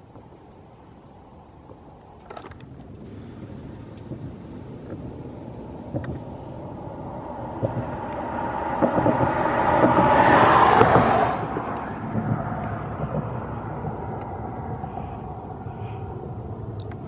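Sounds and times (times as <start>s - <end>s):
jet airliner low rumble: 2.8s - 17.0s
jet engines whining: 3.1s - 16.2s.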